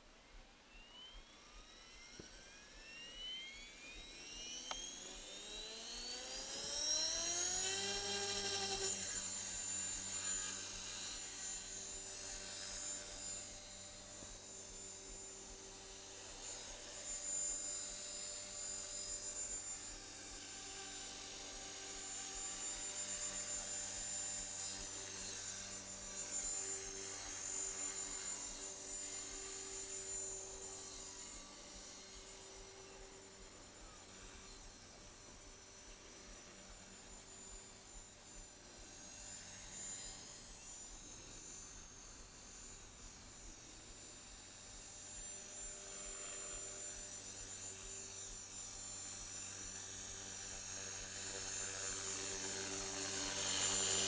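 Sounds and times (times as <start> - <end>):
rc helicopter motor whine: 0.0 - 54.0.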